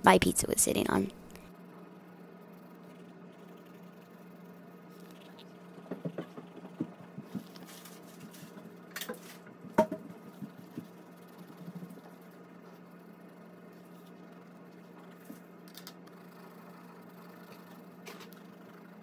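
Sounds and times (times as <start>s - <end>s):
steady low hum: 0.0s - 19.0s
pencil scratching on paper: 2.3s - 5.0s, 10.1s - 15.5s, 16.1s - 19.0s.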